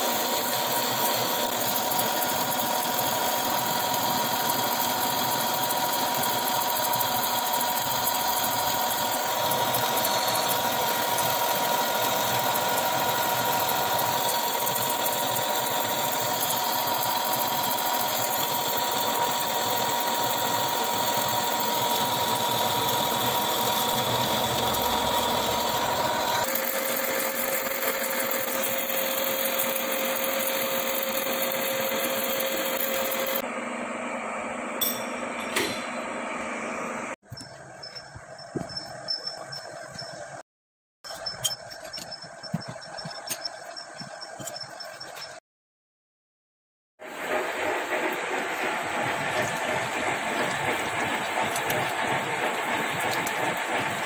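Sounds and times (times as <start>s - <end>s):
lathe cutting tool scraping hiss: 0.0s - 33.4s
lathe machine running: 0.0s - 40.4s, 47.0s - 54.0s
ringing tone in the cut: 9.6s - 11.7s, 34.8s - 36.1s.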